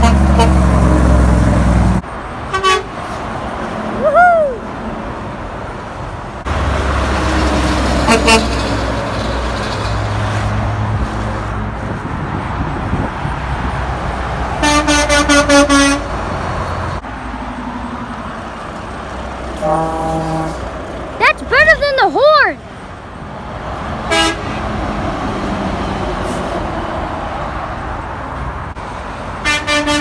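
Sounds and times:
truck horns honking: 0:00.0 - 0:01.7, 0:02.5 - 0:03.1, 0:06.5 - 0:09.0, 0:14.6 - 0:16.3, 0:19.5 - 0:22.6, 0:24.0 - 0:24.8, 0:29.3 - 0:30.0
rumble of passing trucks: 0:00.0 - 0:30.0.

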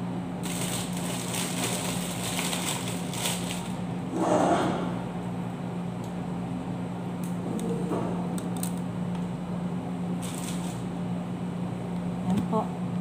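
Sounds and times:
cooling machinery hum: 0:00.0 - 0:13.0.

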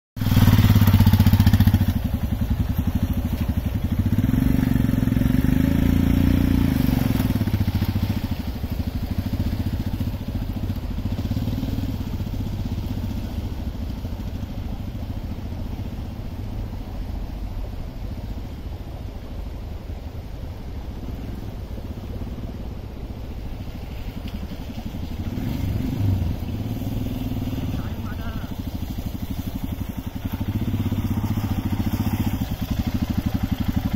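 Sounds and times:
motorcycle engine revving: 0:00.2 - 0:16.0, 0:24.4 - 0:33.9.

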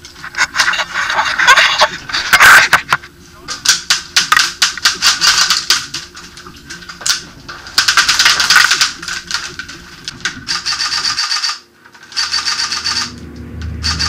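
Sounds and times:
airsoft guns firing full auto: 0:10.5 - 0:13.1.

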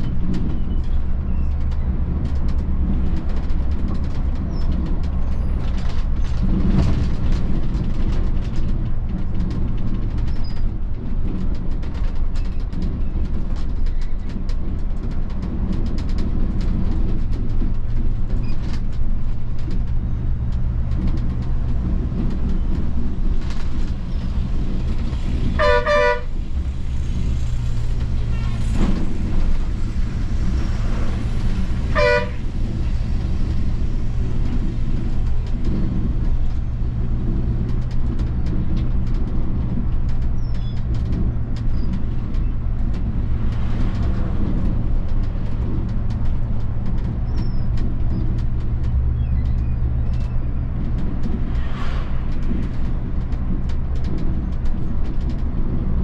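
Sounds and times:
diesel coach engine running: 0:00.0 - 0:56.0
road noise: 0:00.0 - 0:56.0.

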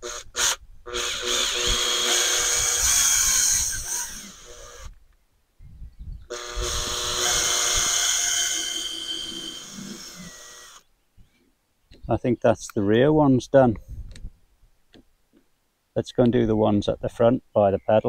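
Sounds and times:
drill whining through plastic: 0:00.0 - 0:05.0, 0:06.3 - 0:10.9.

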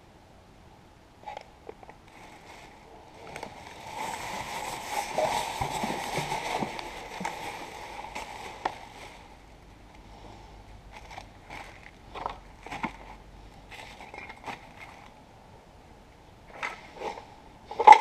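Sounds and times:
plastic bag rustling: 0:01.8 - 0:09.6, 0:10.9 - 0:15.2.

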